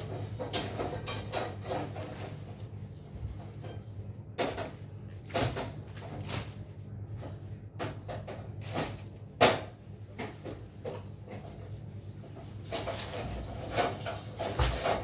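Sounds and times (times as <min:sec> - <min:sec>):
leafy vegetables rustling: 0:05.4 - 0:06.8, 0:12.7 - 0:15.0.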